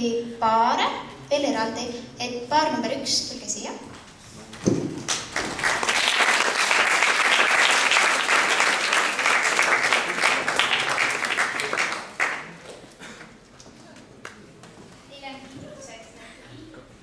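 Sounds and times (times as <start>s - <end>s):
audience applauding: 5.0s - 12.9s.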